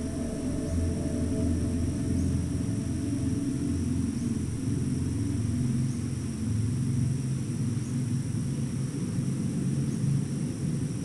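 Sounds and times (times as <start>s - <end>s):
high insect trilling: 0.0s - 8.1s
low steady rumble: 0.0s - 11.0s.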